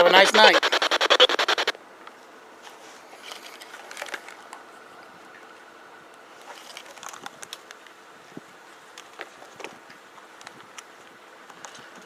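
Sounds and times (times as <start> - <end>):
rustling crackles: 0.0 - 1.7, 2.6 - 4.6, 6.3 - 8.0
faint steady whine: 0.0 - 3.7.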